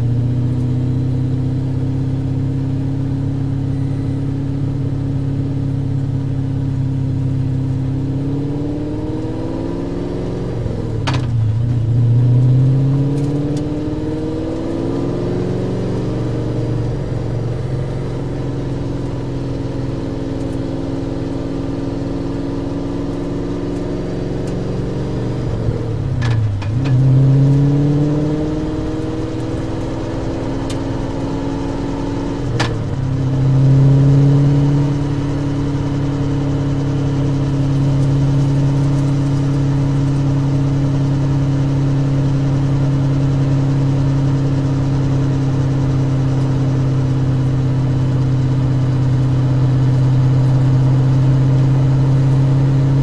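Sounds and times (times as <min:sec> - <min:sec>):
car engine running hard: 0:00.0 - 0:53.0.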